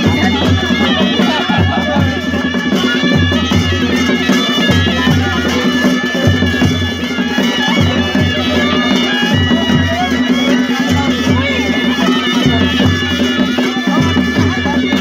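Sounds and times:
drum beats: 0:00.0 - 0:15.0
shrill reedy pipe melody: 0:00.0 - 0:15.0.

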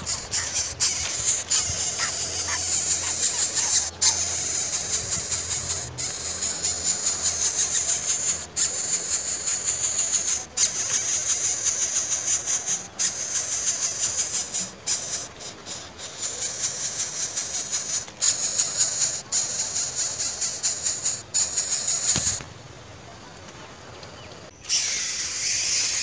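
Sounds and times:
bird chicks begging squeal: 0:00.0 - 0:22.4, 0:24.6 - 0:26.0.

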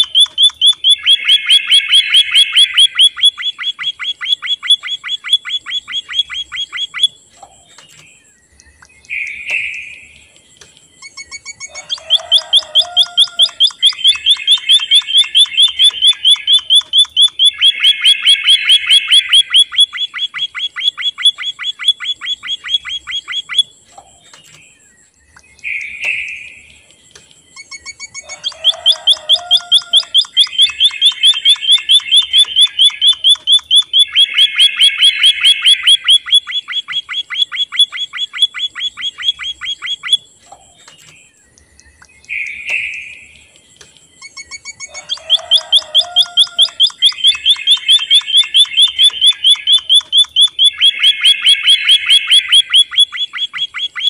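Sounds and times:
bird call: 0:00.0 - 0:10.3, 0:11.0 - 0:43.5, 0:44.1 - 0:54.0
bird trilling: 0:00.0 - 0:10.3, 0:10.9 - 0:24.8, 0:27.4 - 0:43.5, 0:44.1 - 0:54.0.

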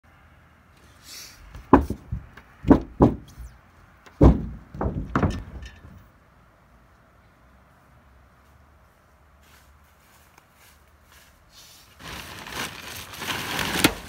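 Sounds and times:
heavy knocks and thuds: 0:01.5 - 0:03.5, 0:04.1 - 0:06.0.

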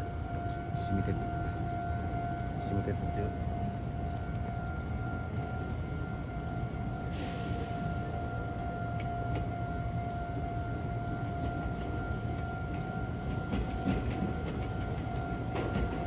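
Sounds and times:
level-crossing warning bell: 0:00.0 - 0:16.0
train wheels clicking on rail joints: 0:08.9 - 0:09.6, 0:11.2 - 0:16.0.

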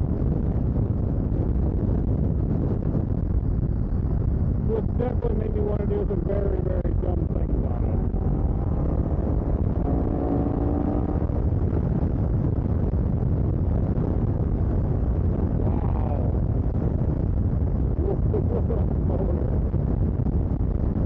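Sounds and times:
wind rush and road noise: 0:00.0 - 0:21.0
faint motorcycle engine: 0:04.7 - 0:12.5.

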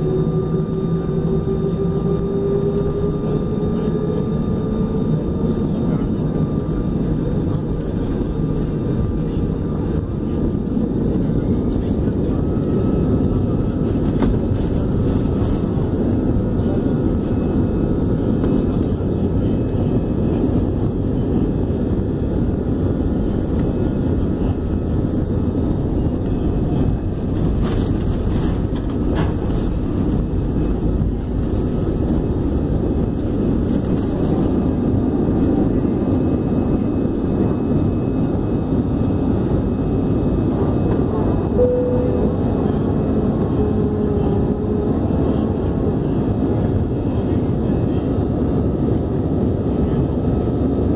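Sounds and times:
jet engines at takeoff thrust: 0:00.0 - 0:50.9.

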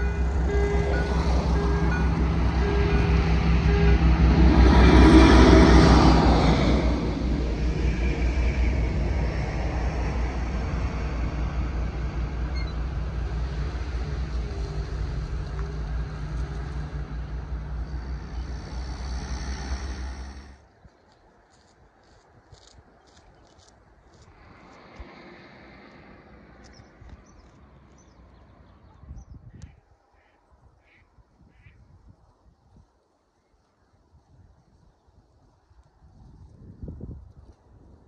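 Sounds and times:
train wheel noise: 0:00.0 - 0:20.6
diesel locomotive engine pulsing: 0:00.0 - 0:20.7.

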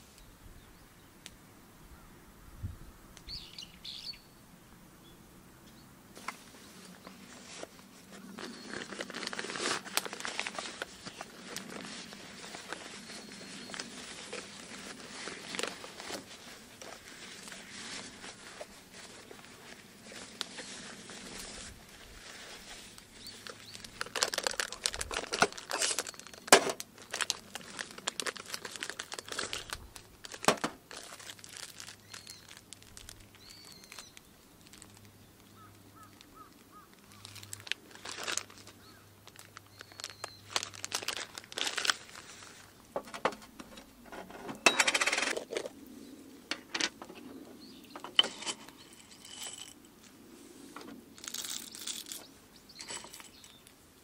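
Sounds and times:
fabric and plastic bags rustling: 0:06.2 - 0:45.8
metal items clinking: 0:24.0 - 0:27.4, 0:43.0 - 0:45.7, 0:47.9 - 0:49.9, 0:51.2 - 0:53.6
coffee beans scooped with spoon: 0:48.2 - 0:49.8.

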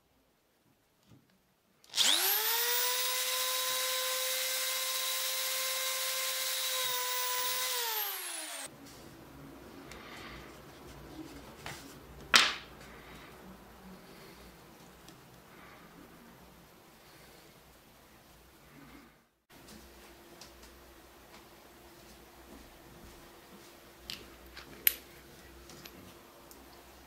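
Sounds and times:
electric drill whining: 0:01.9 - 0:08.7.

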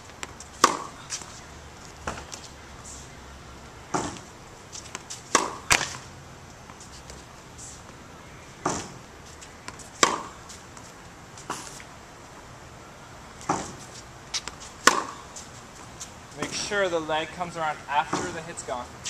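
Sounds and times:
tennis ball bouncing on hard court: 0:00.2 - 0:01.0, 0:04.9 - 0:06.0, 0:08.6 - 0:09.0, 0:09.6 - 0:10.4, 0:14.4 - 0:15.2
tennis ball struck with rackets: 0:00.2 - 0:01.2, 0:03.9 - 0:04.3, 0:04.9 - 0:06.0, 0:08.6 - 0:09.0, 0:09.6 - 0:10.4, 0:14.4 - 0:15.2.

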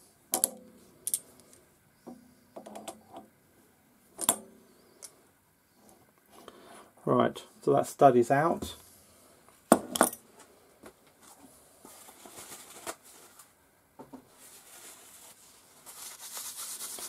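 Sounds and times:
metal parts clinking: 0:00.4 - 0:01.3.

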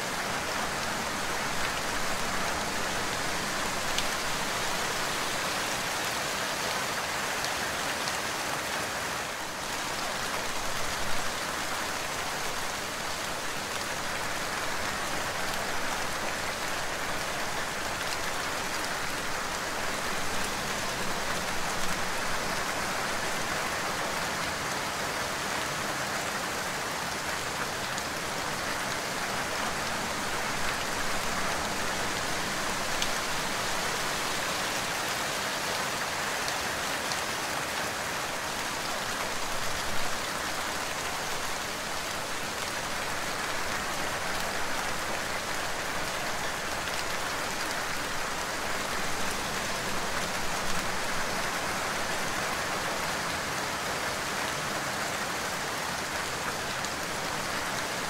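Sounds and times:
steady rain falling: 0:00.0 - 0:58.0
rain drops spattering: 0:09.3 - 0:54.6.

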